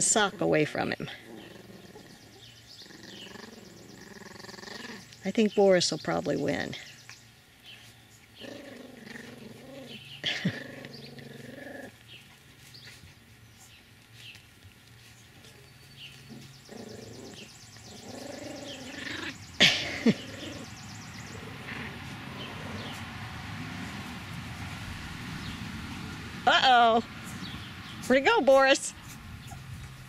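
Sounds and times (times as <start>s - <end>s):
puppies growling: 0.0s - 5.7s, 7.6s - 14.3s, 15.0s - 26.3s.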